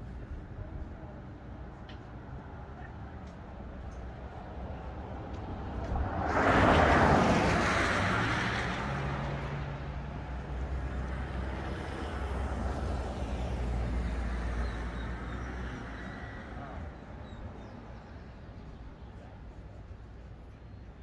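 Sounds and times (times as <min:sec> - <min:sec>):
vehicle passing: 0:05.6 - 0:18.2.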